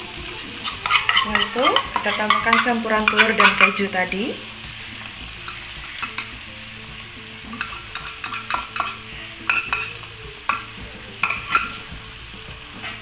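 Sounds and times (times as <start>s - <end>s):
spatula scraping and tapping pan: 0.0s - 3.9s, 5.0s - 6.4s, 7.4s - 11.9s
food sizzling in a frying pan: 0.0s - 13.0s.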